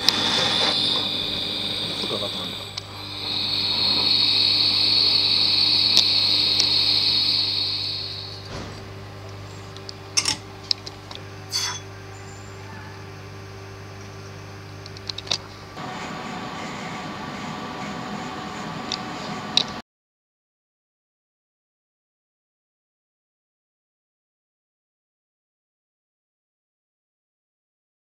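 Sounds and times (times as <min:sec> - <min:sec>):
gas torch flame hissing: 0:00.0 - 0:10.3
low steady hum: 0:00.0 - 0:17.1.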